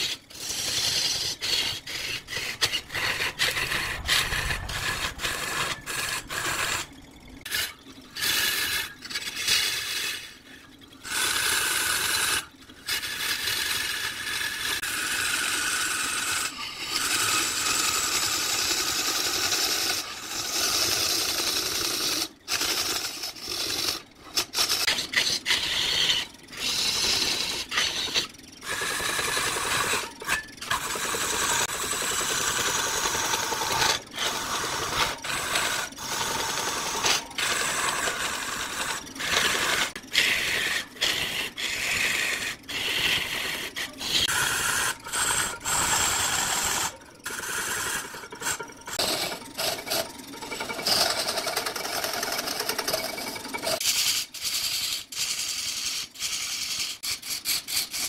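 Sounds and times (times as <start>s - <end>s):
lathe tool scraping wood: 0.0s - 58.0s.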